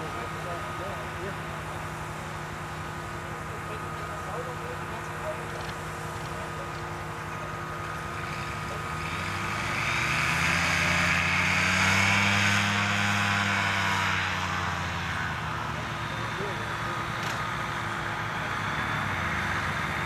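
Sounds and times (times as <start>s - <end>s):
distant engine hum: 0.0s - 20.0s
propeller aircraft engine passing: 0.0s - 20.0s.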